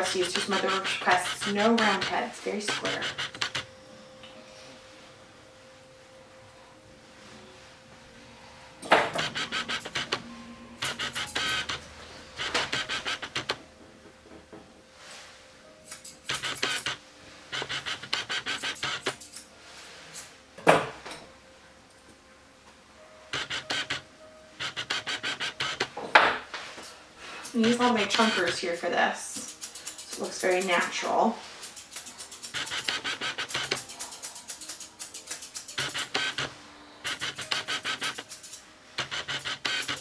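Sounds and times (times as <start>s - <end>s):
scissors snipping: 15.8s - 17.0s, 29.4s - 30.9s, 31.6s - 36.5s, 37.1s - 40.0s.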